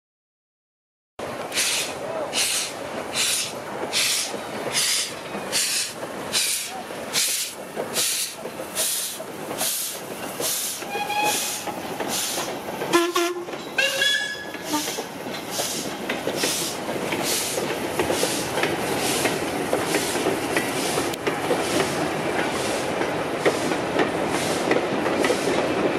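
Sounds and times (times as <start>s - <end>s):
steam locomotive chuffing: 1.4s - 25.9s.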